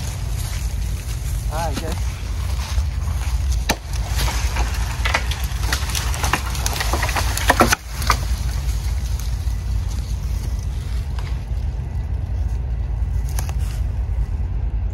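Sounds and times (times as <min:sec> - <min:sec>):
tree cracking and snapping: 0:00.0 - 0:14.2
wind rumble on microphone: 0:00.0 - 0:14.9
axe striking wood: 0:03.6 - 0:04.4, 0:06.3 - 0:08.2.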